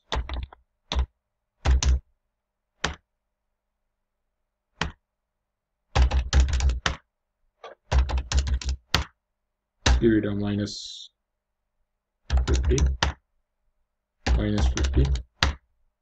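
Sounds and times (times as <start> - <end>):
computer keyboard typing: 0.0 - 2.0, 6.0 - 7.0, 7.8 - 9.1, 12.3 - 13.2, 14.2 - 15.6.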